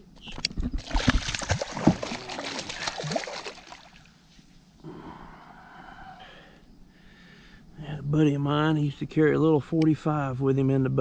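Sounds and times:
fish splashing in water: 0.8 - 4.1.

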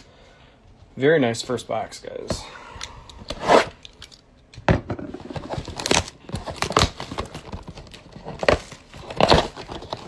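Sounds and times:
plastic wrap crinkling and tearing: 5.4 - 10.0.

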